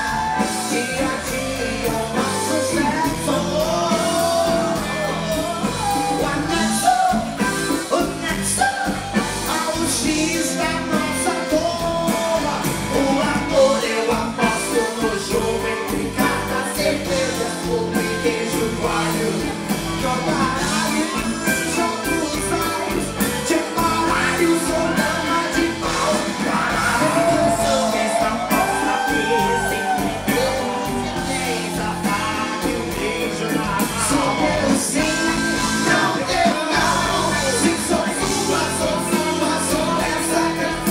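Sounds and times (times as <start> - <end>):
backing singers: 0.0 - 40.9
live band playing a song: 0.0 - 40.9
woman lead singer: 12.9 - 40.9.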